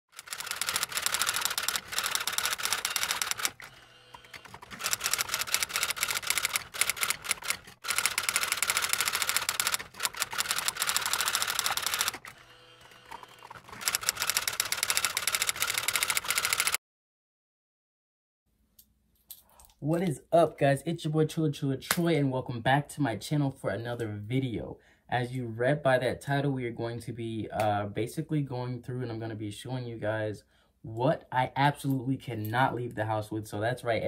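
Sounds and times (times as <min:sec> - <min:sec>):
rapid typing clicks: 0:00.1 - 0:16.8.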